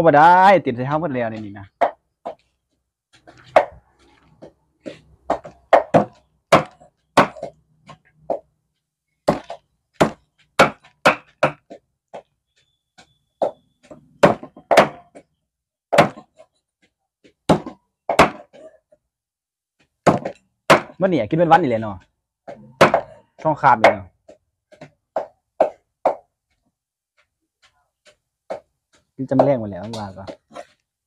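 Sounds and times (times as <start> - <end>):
cleaver chopping on wooden block: 5.3 - 7.6, 9.2 - 12.2, 14.2 - 15.2, 15.9 - 16.4, 17.5 - 18.6, 20.0 - 21.0, 22.5 - 23.2, 24.7 - 26.2.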